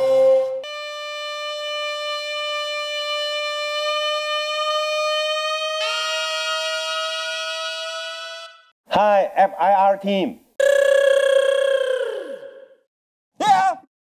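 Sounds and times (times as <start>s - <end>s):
long held music note: 0.0s - 6.4s.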